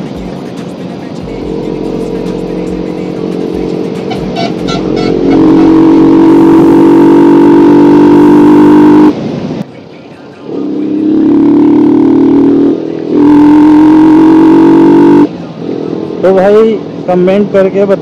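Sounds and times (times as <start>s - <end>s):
motorcycle engine running: 1.2s - 9.1s.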